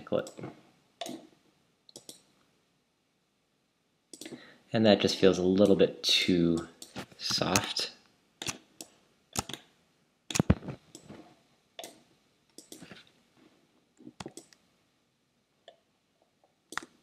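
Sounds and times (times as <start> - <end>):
mouse and keyboard clicking: 1.9 - 2.3, 8.4 - 9.7, 12.6 - 13.0, 16.7 - 17.0.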